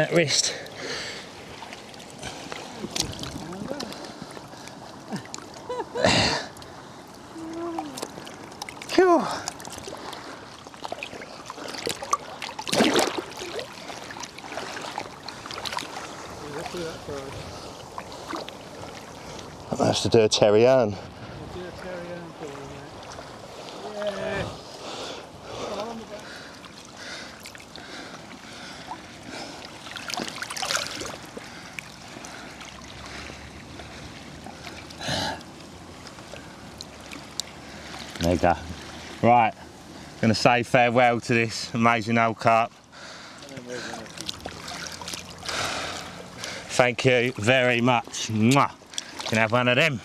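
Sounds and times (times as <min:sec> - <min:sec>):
water lapping and trickling: 0:00.0 - 0:50.0
water splash: 0:01.4 - 0:04.3, 0:07.5 - 0:17.4, 0:29.6 - 0:35.0, 0:43.5 - 0:46.6
water drips: 0:06.5 - 0:16.9, 0:25.7 - 0:39.0, 0:43.2 - 0:49.6.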